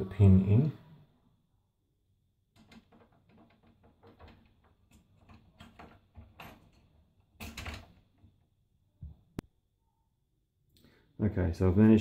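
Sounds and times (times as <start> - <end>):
plastic parts clicking and knocking: 2.5 - 8.5.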